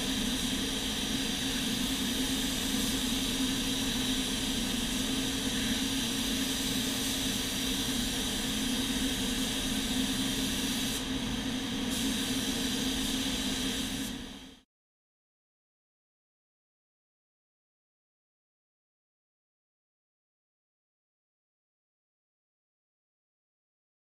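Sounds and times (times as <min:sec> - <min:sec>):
paint spray gun hissing: 0:00.0 - 0:14.6
ventilation fans rushing and humming: 0:00.0 - 0:14.6.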